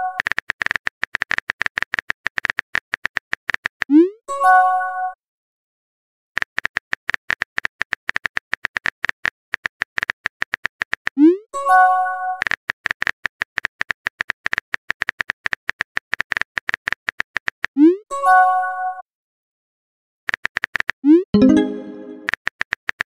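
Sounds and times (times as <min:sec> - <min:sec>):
short notification chime: 0:21.4 - 0:22.3.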